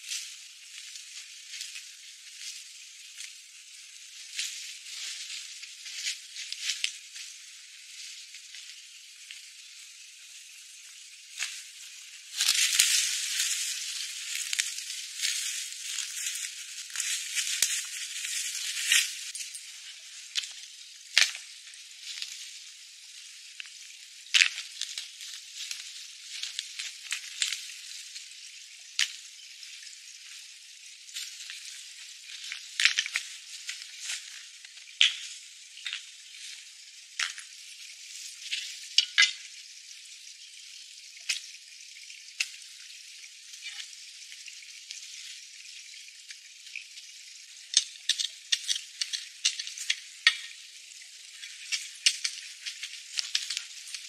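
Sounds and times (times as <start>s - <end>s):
steady hiss: 0.0s - 54.0s
footsteps on dry leaves: 12.3s - 19.4s
stones clacking on rock pile: 47.8s - 50.6s, 51.4s - 54.0s.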